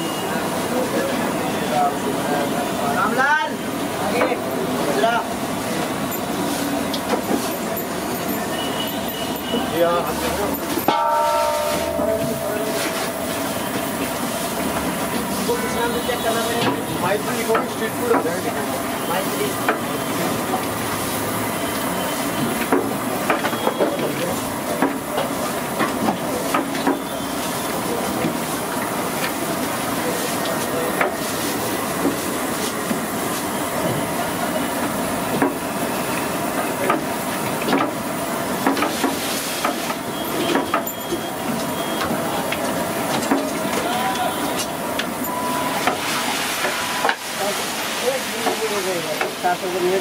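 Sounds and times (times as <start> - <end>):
hot oil sizzling: 1.9 - 40.5, 41.1 - 50.0.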